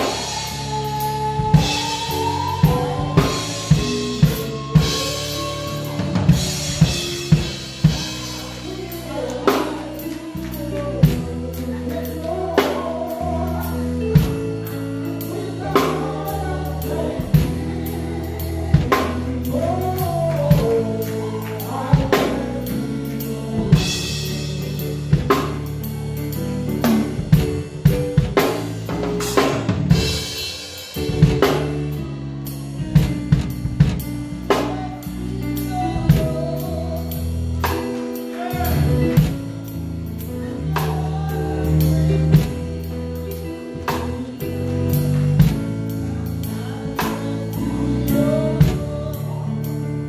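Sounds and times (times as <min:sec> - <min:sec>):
singing: 0:00.0 - 0:14.4, 0:15.2 - 0:25.4, 0:43.9 - 0:50.0
worship band playing: 0:00.0 - 0:50.0.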